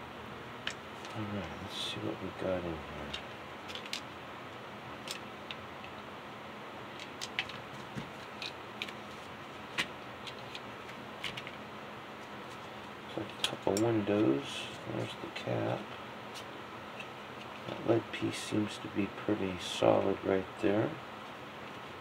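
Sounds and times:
loose pieces rattling inside shell: 0:03.1 - 0:04.1.

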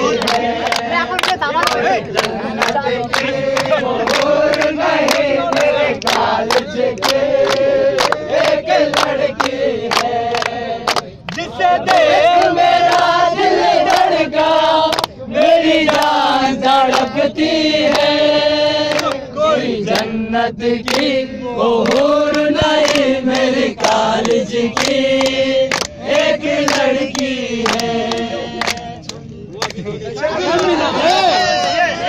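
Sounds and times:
men singing together: 0:00.0 - 0:32.0
hand claps: 0:00.2 - 0:13.1, 0:13.9 - 0:14.1, 0:14.9 - 0:15.2, 0:15.8 - 0:16.2, 0:16.8 - 0:17.2, 0:17.8 - 0:18.1, 0:18.8 - 0:19.2, 0:19.9 - 0:20.1, 0:20.8 - 0:21.1, 0:21.8 - 0:30.8.

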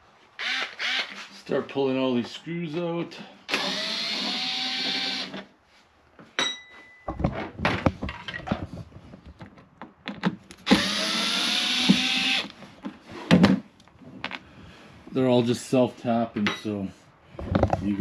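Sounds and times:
electric screwdriver whine: 0:00.4 - 0:01.2, 0:03.5 - 0:05.4, 0:10.7 - 0:12.6.

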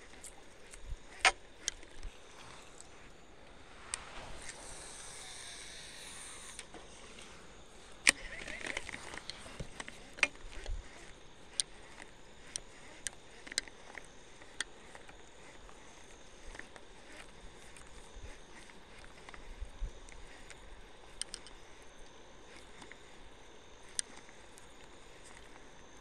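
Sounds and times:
sharp tackle clicks: 0:00.0 - 0:02.1, 0:08.0 - 0:15.8, 0:16.4 - 0:21.6
soft hiss: 0:02.1 - 0:10.1.

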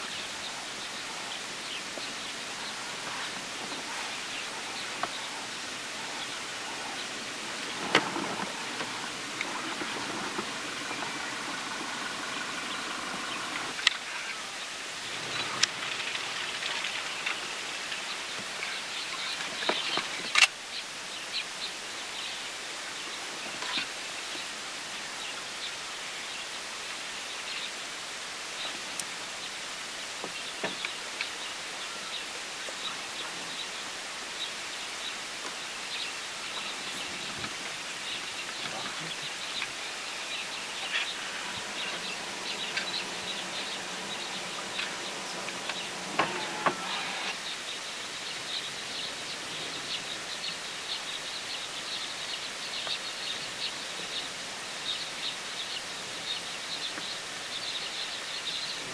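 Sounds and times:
small birds chirping: 0:00.0 - 0:58.9
steady outdoor hiss: 0:00.0 - 0:58.9
doves flapping and calling: 0:00.3 - 0:14.4, 0:15.0 - 0:20.3, 0:36.3 - 0:47.4
faint scattered clicks: 0:03.0 - 0:14.3, 0:15.2 - 0:20.6, 0:40.4 - 0:47.4.

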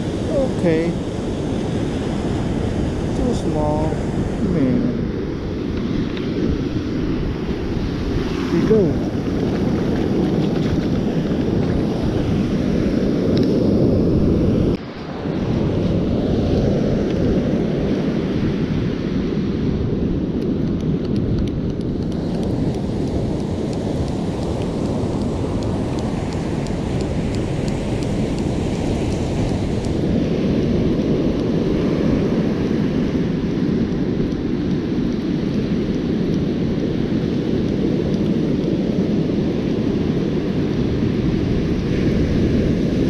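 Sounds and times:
surf breaking on beach: 0:00.0 - 0:19.6
wind buffeting microphone: 0:00.0 - 0:43.0.

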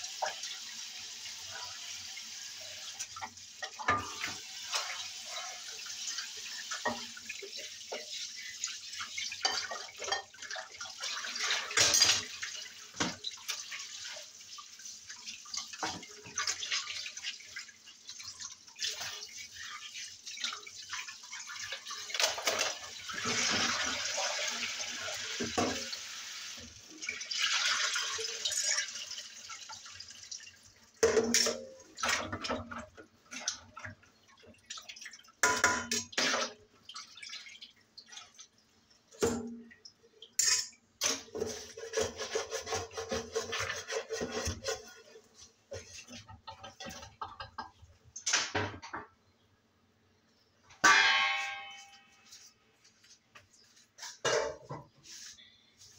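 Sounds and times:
dishes and utensils clinking: 0:02.9 - 0:05.0, 0:09.2 - 0:13.7, 0:21.8 - 0:24.0, 0:31.0 - 0:33.0, 0:35.4 - 0:36.6, 0:40.4 - 0:49.1, 0:50.8 - 0:52.6, 0:53.7 - 0:55.4.

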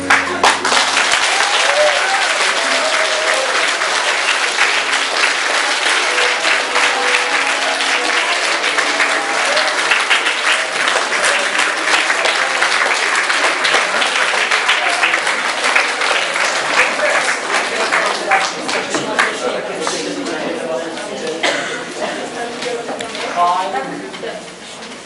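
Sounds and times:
audience applauding: 0:00.0 - 0:20.4.

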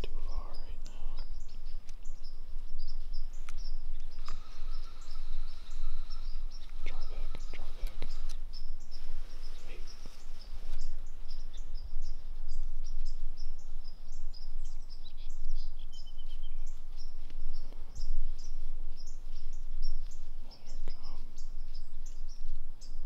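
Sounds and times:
songbirds chirping: 0:00.0 - 0:23.0
steady low rumble: 0:00.0 - 0:23.0.

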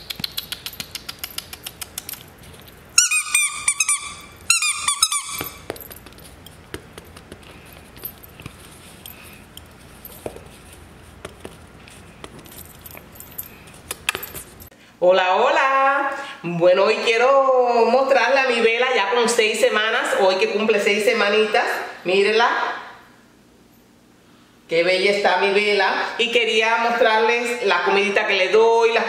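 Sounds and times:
quick even ticking: 0:00.0 - 0:02.3
high-pitched squeaking: 0:03.0 - 0:05.7.

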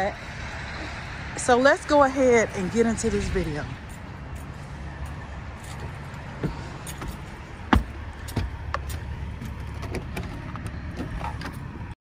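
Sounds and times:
footsteps on wooden steps: 0:03.9 - 0:11.2.

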